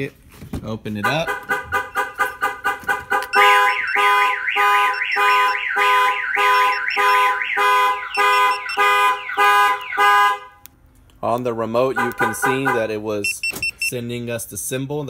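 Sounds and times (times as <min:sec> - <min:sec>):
car alarm chirps: 0:01.1 - 0:10.6, 0:12.0 - 0:14.0
car alarm multi-tone siren: 0:01.2 - 0:10.6, 0:12.0 - 0:13.9.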